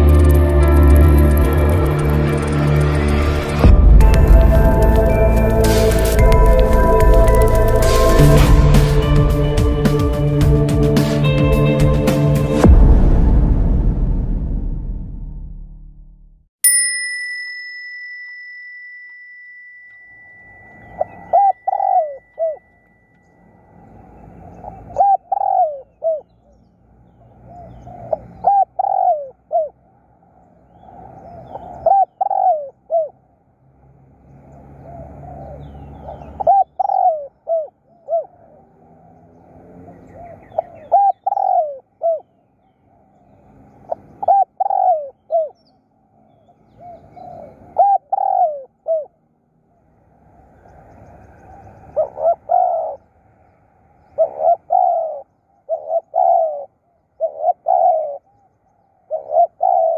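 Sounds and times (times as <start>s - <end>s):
dove cooing: 20.9s - 22.6s, 24.4s - 26.3s, 27.5s - 29.8s, 31.1s - 33.1s, 34.8s - 38.6s, 40.0s - 42.3s, 43.9s - 45.6s, 46.7s - 49.2s, 51.4s - 53.0s, 54.1s - 58.3s, 59.1s - 59.9s.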